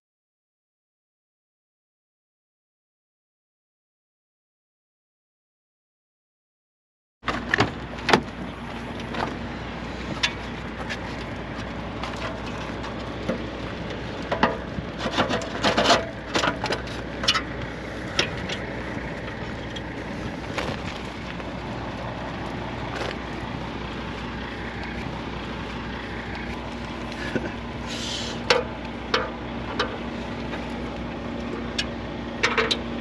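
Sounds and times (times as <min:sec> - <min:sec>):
steady low hum: 0:07.3 - 0:33.0.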